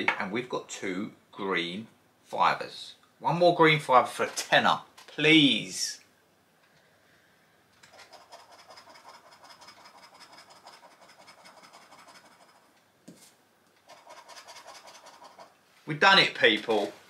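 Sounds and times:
scratch card rasping: 0:07.8 - 0:15.6.

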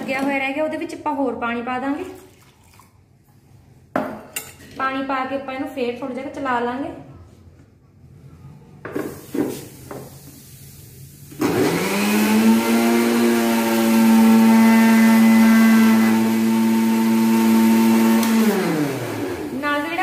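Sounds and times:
mixer grinder motor humming: 0:11.4 - 0:19.6.

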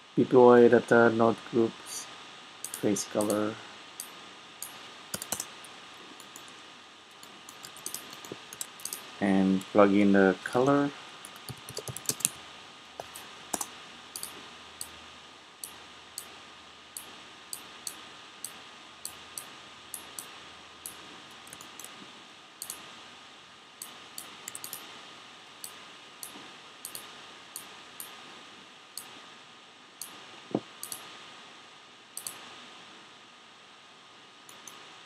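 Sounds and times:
faint steady hiss: 0:00.0 - 0:35.0
mouse and keyboard clicks: 0:02.6 - 0:03.4, 0:04.0 - 0:05.5, 0:07.2 - 0:09.1, 0:13.0 - 0:14.9, 0:23.8 - 0:24.8, 0:32.2 - 0:32.4, 0:34.5 - 0:34.8.

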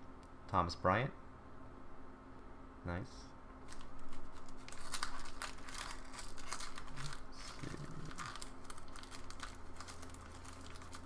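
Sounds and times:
foil wrapper crinkling and tearing: 0:03.6 - 0:11.0.

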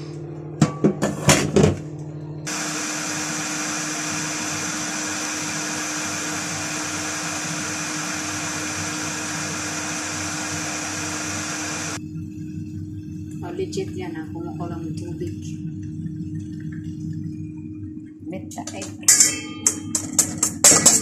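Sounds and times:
kettle hissing: 0:02.5 - 0:12.0.

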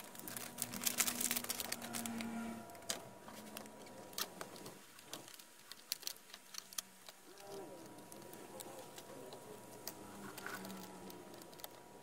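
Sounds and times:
faint low hum: 0:00.0 - 0:12.0
laptop parts clicking and rattling: 0:00.0 - 0:12.0.

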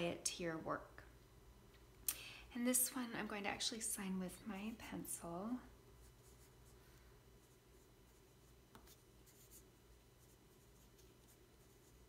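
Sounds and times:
pencil scratching on paper: 0:07.4 - 0:12.0.

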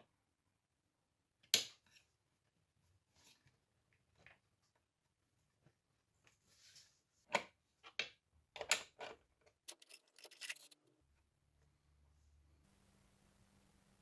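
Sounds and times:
metal scraping on board: 0:09.7 - 0:10.8.

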